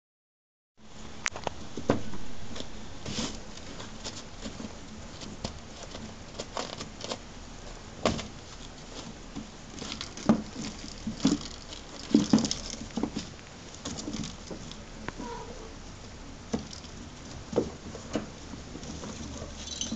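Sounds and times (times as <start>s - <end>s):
floor pad rustling: 1.7s - 14.8s
kittens' paws pattering: 2.5s - 19.9s.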